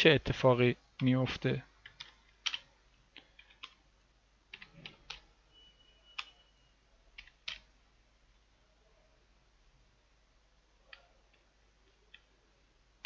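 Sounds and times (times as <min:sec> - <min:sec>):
faint keyboard keystrokes: 0:07.2 - 0:07.7.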